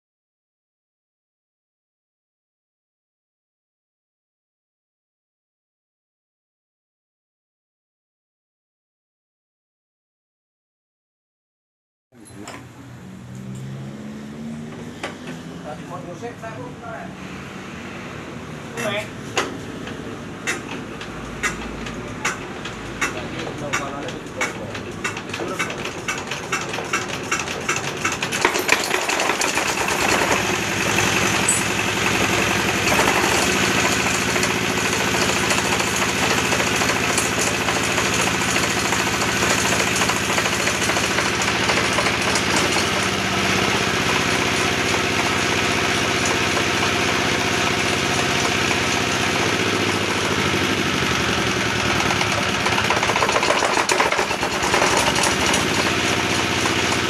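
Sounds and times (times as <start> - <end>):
diesel engine running: 12.4 - 57.0
diesel engine hand-cranked: 18.8 - 57.0.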